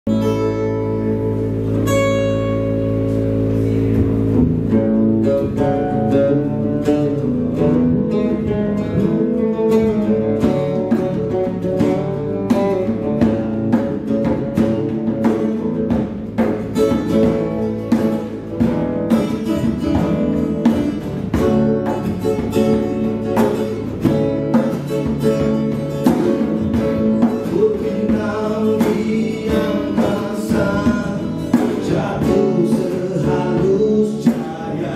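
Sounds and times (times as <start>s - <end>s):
acoustic guitar strumming: 0.1s - 34.9s
hand drum beat: 0.1s - 34.9s
man singing: 27.2s - 34.9s.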